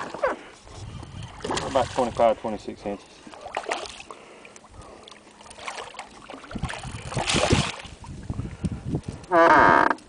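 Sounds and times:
fish thrashing and splashing in water: 1.1s - 2.2s, 3.3s - 8.0s.

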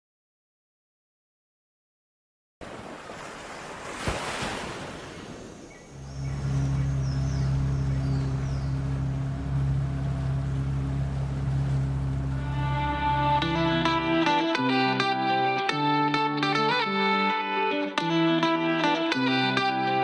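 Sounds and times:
low synthesizer drone: 5.9s - 15.6s.

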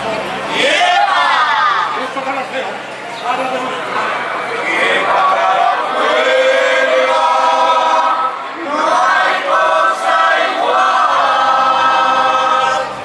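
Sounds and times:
choir singing: 4.6s - 13.0s.

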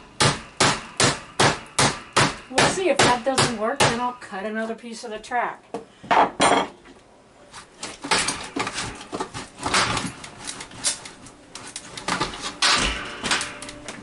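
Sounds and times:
screwdriver knocking and scraping: 7.8s - 14.0s.

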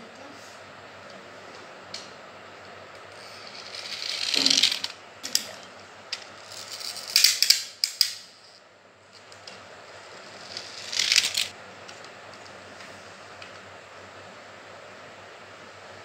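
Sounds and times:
toy car gears ratcheting whir: 3.4s - 5.0s, 6.4s - 8.2s, 10.2s - 11.5s.

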